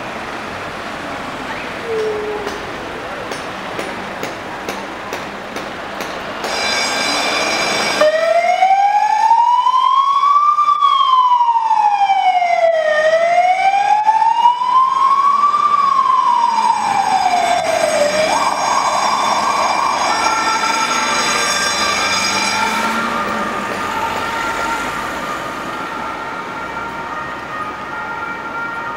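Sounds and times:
fire engine siren: 6.4s - 28.9s.

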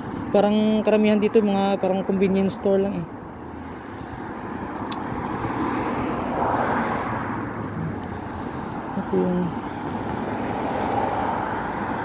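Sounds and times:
street traffic: 0.0s - 12.0s
vehicle passing: 0.0s - 12.0s.

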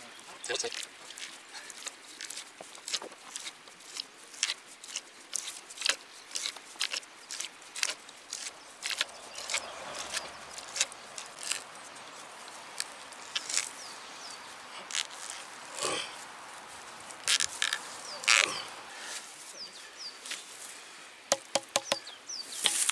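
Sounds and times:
hand auger crunching into wood: 0.5s - 11.7s, 12.7s - 13.7s, 14.8s - 16.1s, 17.1s - 18.7s, 21.3s - 22.0s, 22.6s - 22.9s.

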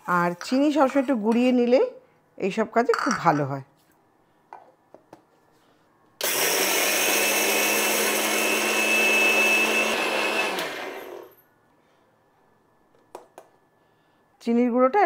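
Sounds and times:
mixer grinder motor whining: 6.2s - 11.4s.

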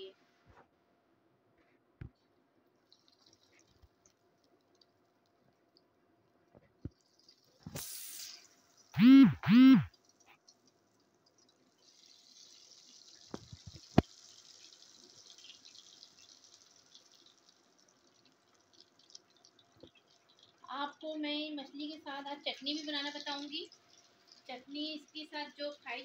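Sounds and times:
fish frying in oil: 2.8s - 5.9s, 6.9s - 9.0s, 9.9s - 26.0s
splash-like hiss: 7.6s - 8.6s
short rising and falling pitched sounds: 9.0s - 9.9s.

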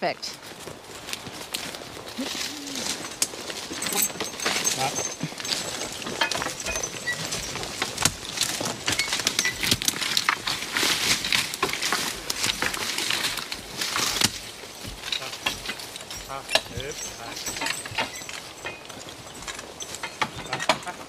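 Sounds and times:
harness chains clinking: 1.6s - 21.0s
twigs and branches snapping: 7.9s - 15.6s.

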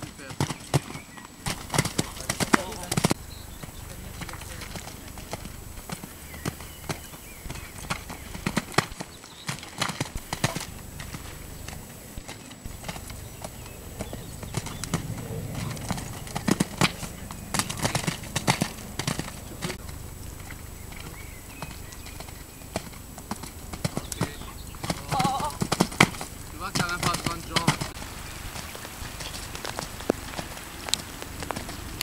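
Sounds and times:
horse hoofbeats on sand: 0.0s - 32.0s.

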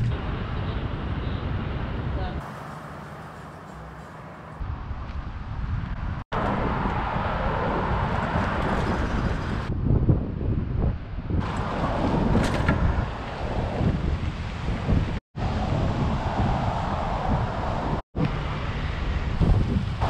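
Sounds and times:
road traffic passing: 0.0s - 9.9s, 10.6s - 20.0s
wind buffeting microphone: 4.6s - 20.0s.

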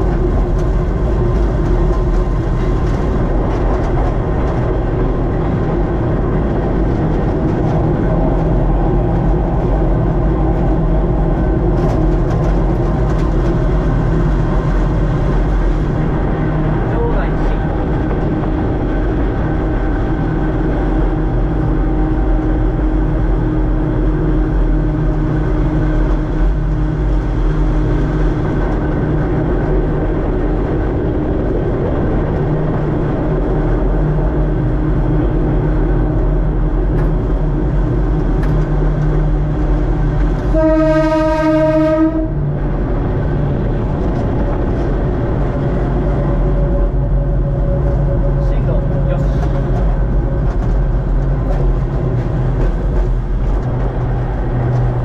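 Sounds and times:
train rumbling with motor hum: 0.0s - 55.0s
train horn blast: 40.4s - 42.5s.

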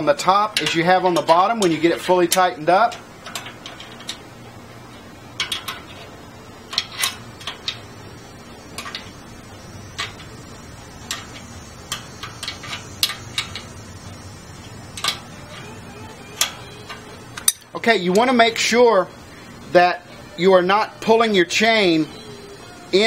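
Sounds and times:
wrenches clinking on metal: 0.2s - 4.2s, 4.9s - 7.8s, 8.7s - 9.2s, 9.9s - 13.8s, 14.6s - 18.4s.

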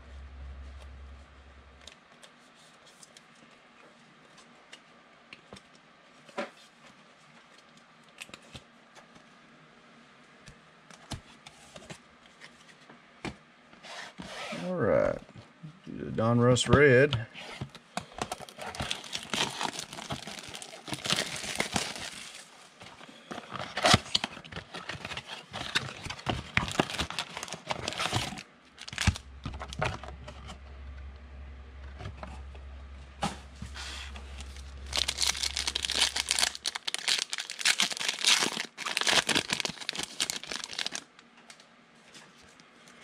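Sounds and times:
steady low hum: 0.0s - 2.1s, 14.5s - 38.4s
plastic wrappers crinkling and tearing: 18.1s - 30.1s, 33.9s - 41.6s.

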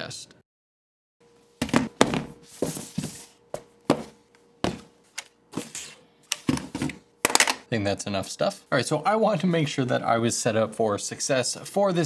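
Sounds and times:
plastic boxes knocking on table: 1.6s - 2.3s.

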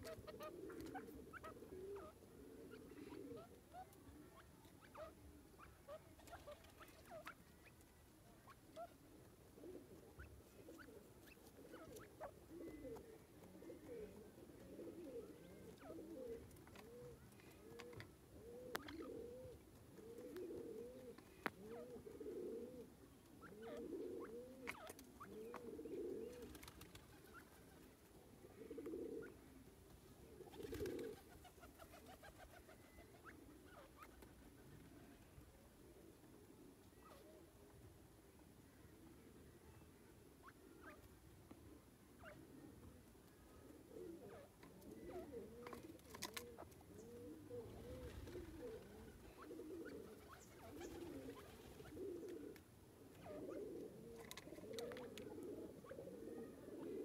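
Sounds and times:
soft low bird calls: 0.0s - 29.7s, 36.4s - 57.0s.

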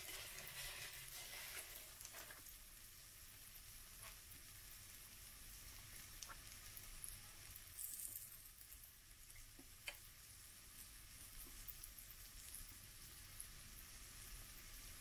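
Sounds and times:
batter sizzling in a pan: 0.0s - 15.0s
small pops and crackles: 5.7s - 12.8s.

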